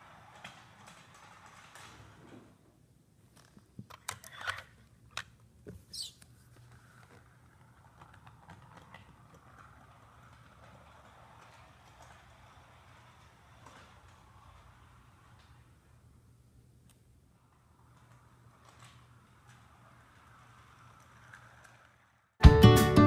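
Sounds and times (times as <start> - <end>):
toy car clicks and knocks: 0.0 - 2.2, 3.4 - 5.4, 6.9 - 16.0, 17.4 - 22.3
brief squeak: 5.8 - 6.2.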